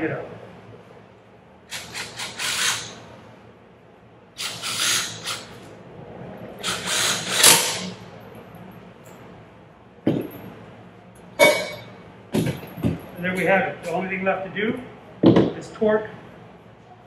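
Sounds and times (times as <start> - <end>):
impact driver running: 6.6 - 7.9.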